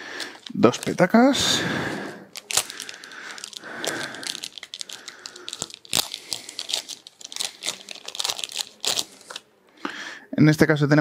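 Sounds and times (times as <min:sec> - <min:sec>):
plastic bag crinkling: 0:00.0 - 0:01.4, 0:02.3 - 0:09.5.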